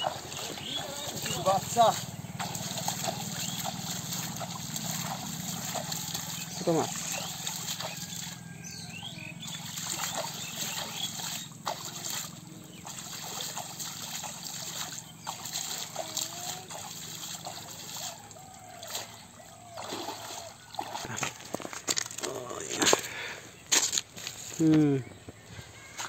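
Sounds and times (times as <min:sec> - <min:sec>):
hand splashing muddy water: 0:00.0 - 0:21.6
water trickling and sloshing: 0:00.0 - 0:23.0.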